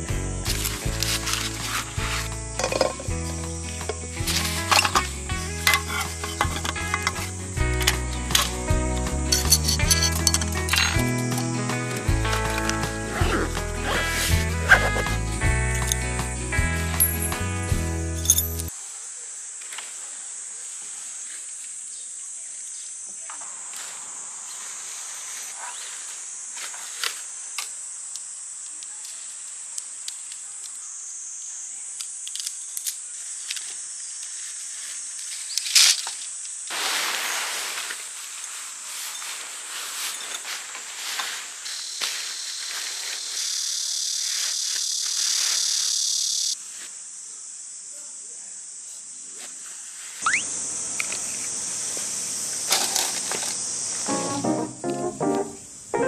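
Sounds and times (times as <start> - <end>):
tent fabric rustling: 0.5 - 15.4, 36.7 - 43.5
high-pitched insect buzzing: 0.5 - 16.1, 41.7 - 46.6, 50.2 - 51.5.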